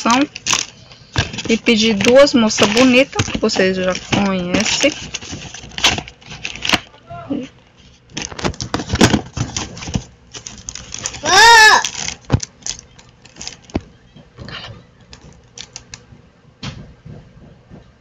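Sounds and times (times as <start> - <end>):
packaging rustling and knocking: 0.0 - 6.9, 8.0 - 16.0
short pitched cry: 11.2 - 11.9.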